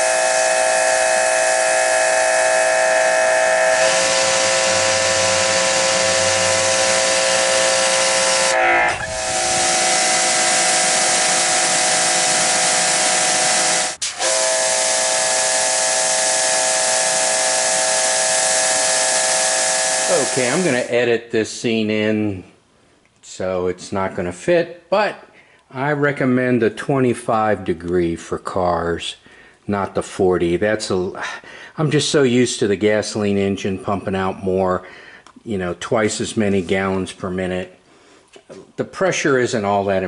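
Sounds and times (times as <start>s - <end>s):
pressure washer machine whine: 0.0s - 20.9s
pressure washer water jet hiss: 3.7s - 20.9s.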